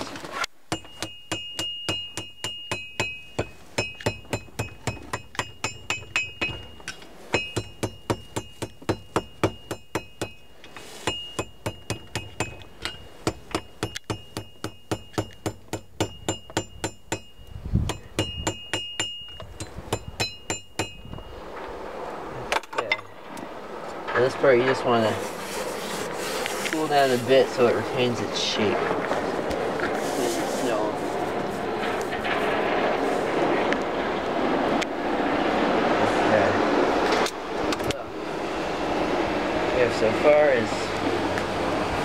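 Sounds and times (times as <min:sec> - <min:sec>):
hammer striking iron on anvil: 0:00.7 - 0:21.2.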